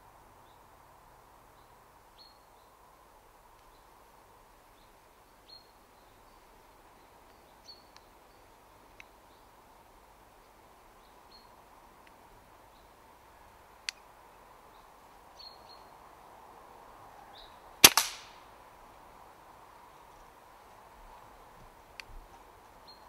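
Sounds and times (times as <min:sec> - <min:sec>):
air rifle shot crack: 0:17.8 - 0:18.4.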